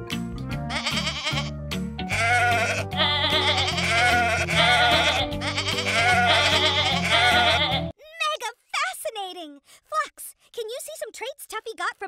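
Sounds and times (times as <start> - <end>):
background music with bass: 0.0 - 7.9
goat bleating: 0.7 - 1.5, 2.1 - 7.9.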